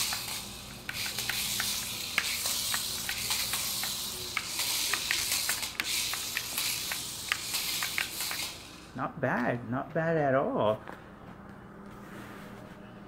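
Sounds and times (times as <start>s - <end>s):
toy car clattering on tile: 0.0s - 8.9s
toy car motor hissing: 0.0s - 9.0s.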